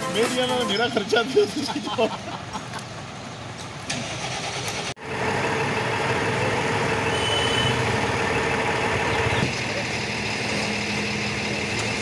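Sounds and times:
quiet street noise: 0:00.0 - 0:12.0
truck diesel engine idling: 0:04.0 - 0:12.0.

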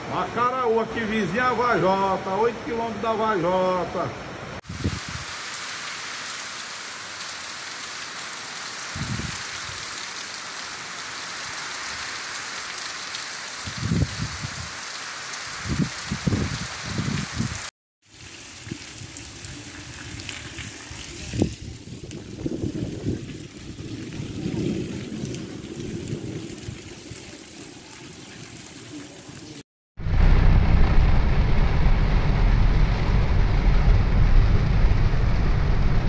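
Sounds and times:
heavy rain: 0:04.2 - 0:36.0
low rumbles: 0:30.0 - 0:36.0.

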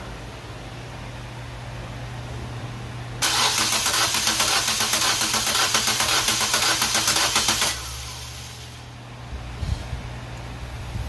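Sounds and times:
starter cranking car engine: 0:03.2 - 0:08.4.

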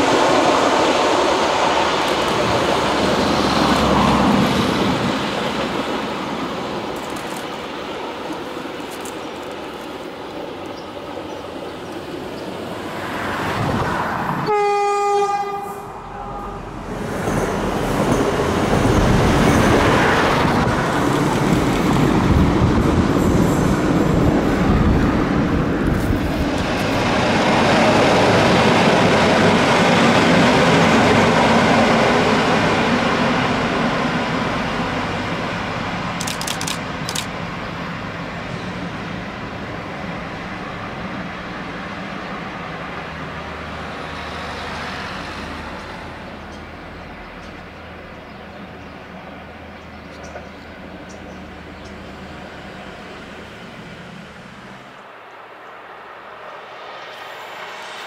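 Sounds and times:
train engine drone: 0:00.0 - 0:58.0
train horn blast: 0:14.4 - 0:16.7
train wheel noise: 0:16.6 - 0:43.3.

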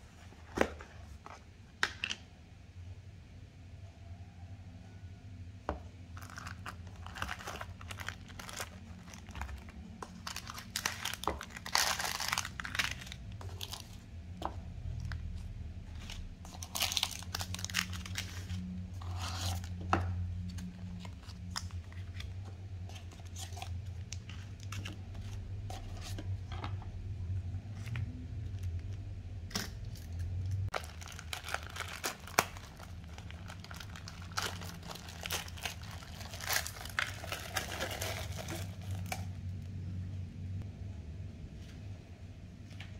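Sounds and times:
low steady hum: 0:00.0 - 0:42.9
packaging tearing: 0:06.2 - 0:14.0, 0:16.0 - 0:19.8, 0:30.7 - 0:39.2
plastic packaging crinkling: 0:06.2 - 0:14.0, 0:14.9 - 0:25.4, 0:30.7 - 0:39.4.

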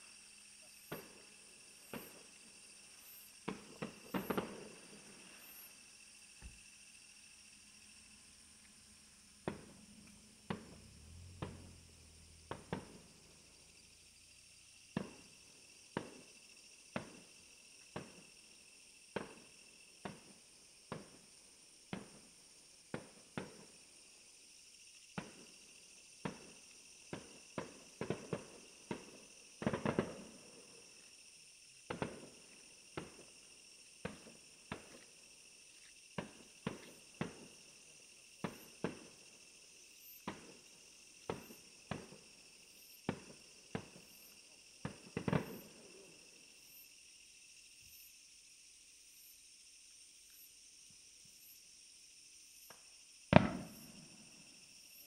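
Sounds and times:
high insect trill: 0:00.0 - 0:55.0
fireworks bangs: 0:00.9 - 0:02.3, 0:03.4 - 0:05.2, 0:09.4 - 0:11.7, 0:12.5 - 0:13.1, 0:26.2 - 0:30.6, 0:31.9 - 0:33.3, 0:44.8 - 0:45.8, 0:53.3 - 0:54.2.

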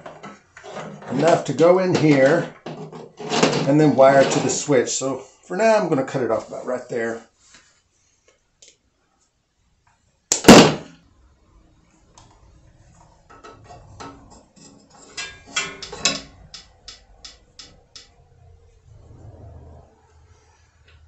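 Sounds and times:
clicks and rustles of handling: 0:13.3 - 0:18.1.

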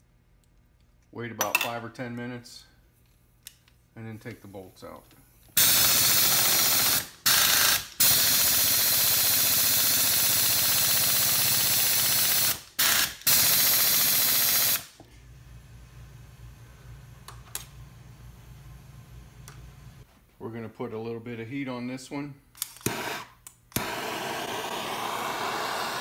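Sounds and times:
air wrench rattling: 0:05.6 - 0:14.8.

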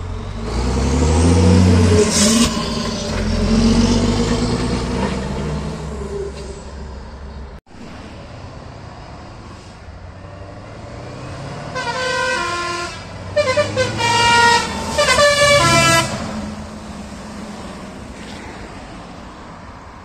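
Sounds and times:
truck engine rumble: 0:00.0 - 0:20.0
musical air horn tune: 0:11.8 - 0:16.3.

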